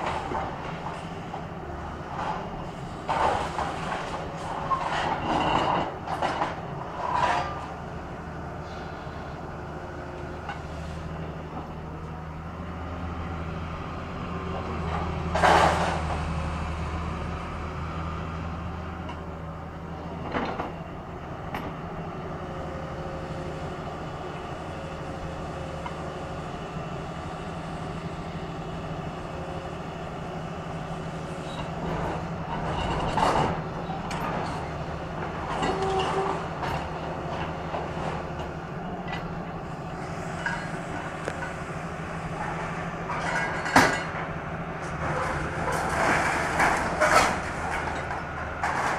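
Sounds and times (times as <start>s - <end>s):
diesel engine running: 0.0s - 48.9s
debris crashing and scraping: 45.0s - 48.9s.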